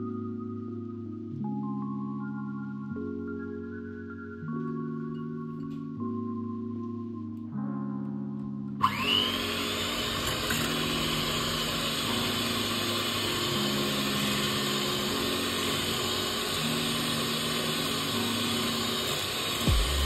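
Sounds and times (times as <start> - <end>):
electric mixer motor whining: 8.8 - 20.0.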